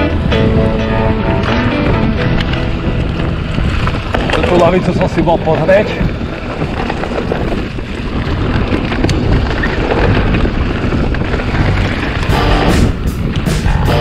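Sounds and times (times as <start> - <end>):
music: 0.0 - 3.8, 12.3 - 14.0
wind buffeting microphone: 0.0 - 14.0.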